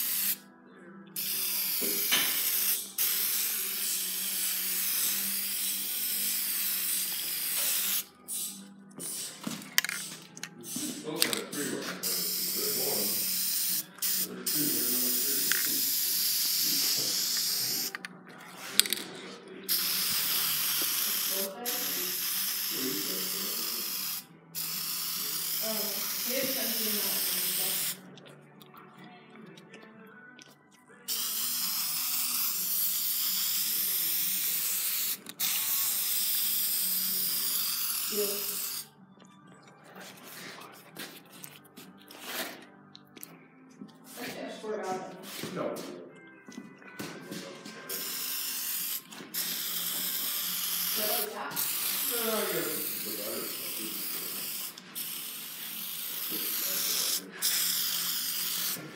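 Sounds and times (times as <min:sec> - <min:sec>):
spray paint hissing: 0:00.0 - 0:00.4, 0:01.2 - 0:11.0, 0:12.0 - 0:18.0, 0:19.7 - 0:28.0, 0:31.1 - 0:38.9, 0:47.9 - 0:58.9.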